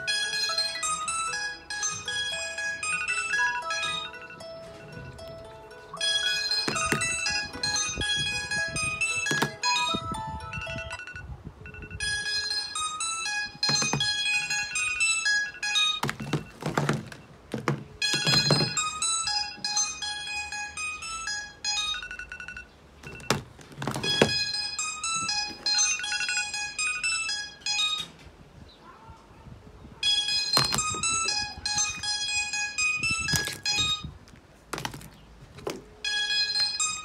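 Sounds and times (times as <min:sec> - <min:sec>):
phone ringtone melodies: 0:00.0 - 0:28.2, 0:30.0 - 0:34.2, 0:34.8 - 0:37.0
phones knocking when set down: 0:06.1 - 0:07.8, 0:09.2 - 0:09.9, 0:13.5 - 0:14.8, 0:16.0 - 0:19.1, 0:23.0 - 0:25.8, 0:30.5 - 0:31.9, 0:33.2 - 0:34.0, 0:34.7 - 0:35.9.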